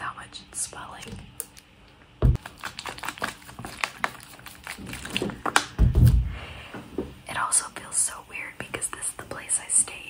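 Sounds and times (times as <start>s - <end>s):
sachet crinkling: 2.4s - 5.7s.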